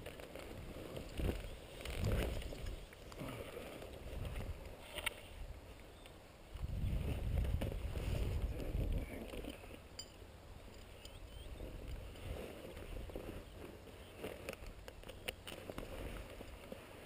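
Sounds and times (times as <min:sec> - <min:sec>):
wind buffeting microphone: 0:00.6 - 0:02.9, 0:04.0 - 0:04.7, 0:06.5 - 0:09.6
footsteps in dry grass: 0:11.5 - 0:17.0.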